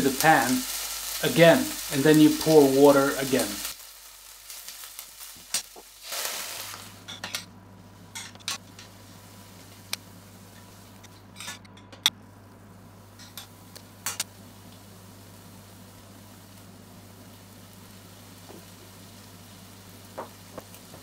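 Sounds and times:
onions sizzling: 0.0s - 11.5s, 12.2s - 21.0s
low steady hum: 6.6s - 21.0s.

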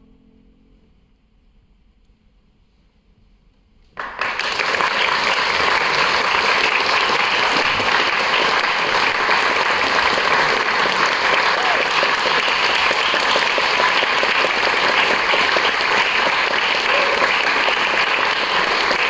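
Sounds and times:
audience applause: 4.0s - 19.0s.

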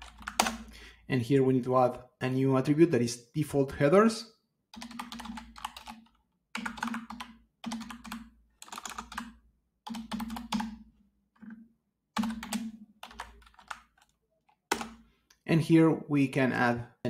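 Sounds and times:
computer keyboard typing: 0.0s - 0.7s, 4.7s - 10.8s, 12.2s - 15.0s.

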